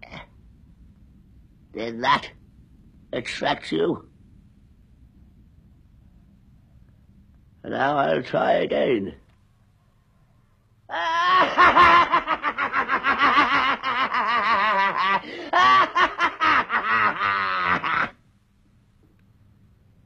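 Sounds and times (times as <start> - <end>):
man laughing: 10.9 - 18.2.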